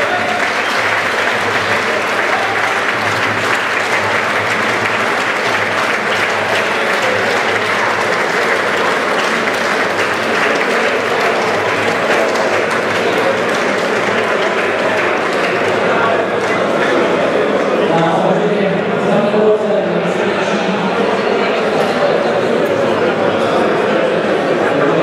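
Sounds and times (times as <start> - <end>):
audience applauding: 0.0 - 17.9.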